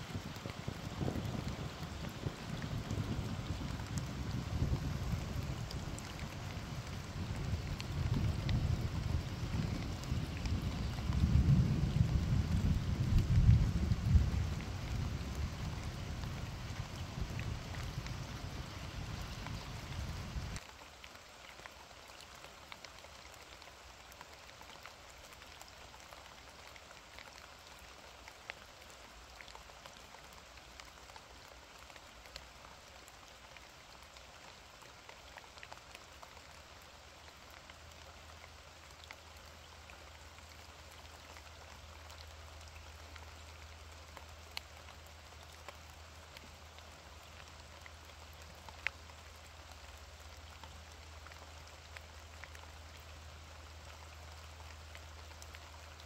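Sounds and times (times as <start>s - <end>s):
rain falling: 0.0s - 56.0s
raindrops ticking: 0.0s - 56.0s.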